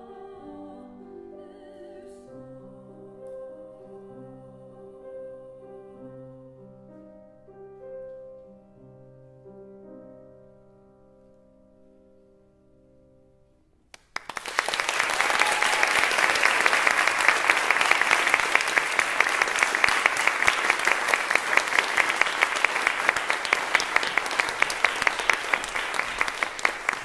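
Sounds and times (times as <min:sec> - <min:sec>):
audience applauding: 0:14.0 - 0:27.0.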